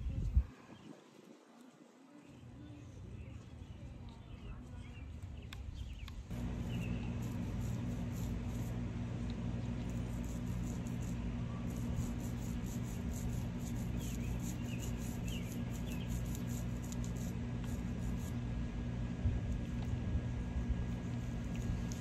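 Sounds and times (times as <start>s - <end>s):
low mechanical hum: 0.0s - 22.0s
faint high scratching: 6.3s - 18.4s.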